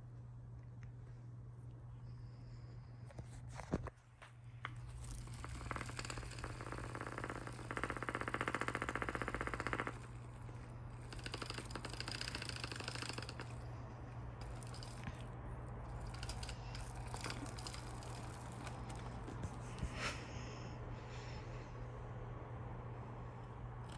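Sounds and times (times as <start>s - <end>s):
steady low hum: 0.0s - 23.9s
fast rasping scratching: 4.9s - 19.8s
kittens scrabbling and scraping: 14.4s - 20.1s.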